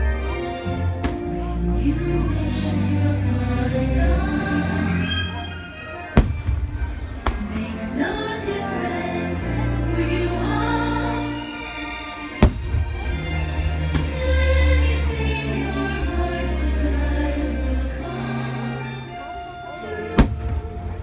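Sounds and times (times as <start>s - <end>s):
music with singing: 0.0s - 21.0s
firework bangs: 6.2s - 7.6s, 12.4s - 13.1s, 20.2s - 21.0s.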